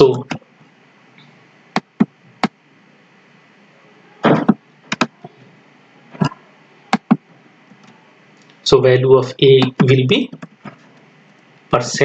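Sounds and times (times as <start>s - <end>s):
keyboard and mouse clicks: 1.8s - 2.6s, 4.3s - 5.2s, 6.2s - 7.2s, 9.6s - 10.8s.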